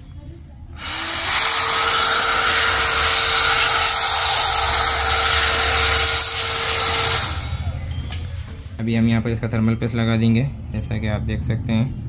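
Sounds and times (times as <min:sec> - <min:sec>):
electric air blower running: 0:00.8 - 0:08.3.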